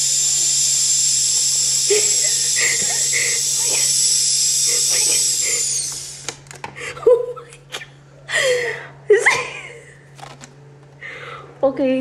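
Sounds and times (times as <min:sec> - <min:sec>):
air hissing out of balloon: 0:00.0 - 0:06.4
woman laughing: 0:01.9 - 0:04.0, 0:06.8 - 0:10.1.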